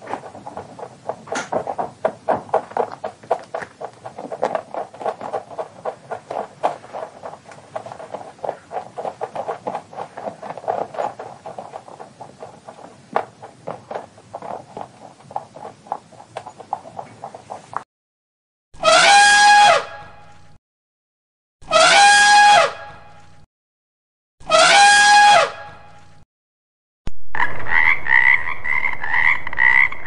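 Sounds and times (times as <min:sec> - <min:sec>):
rabbit scratching in sand: 0:00.0 - 0:17.8.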